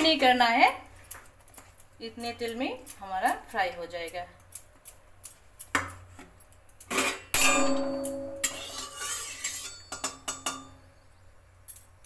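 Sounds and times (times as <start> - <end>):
spoon clanging on metal pan: 6.9 - 10.9.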